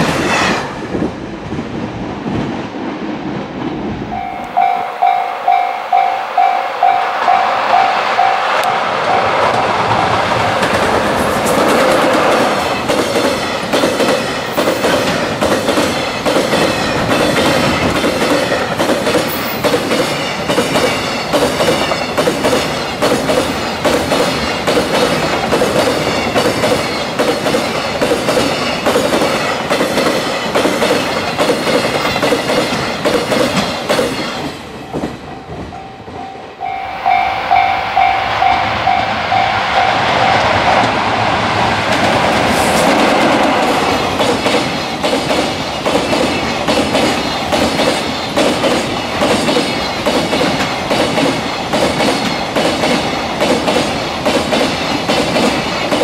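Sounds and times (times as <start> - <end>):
train wheels clattering over rail joints: 9.5 - 35.2, 41.9 - 56.0.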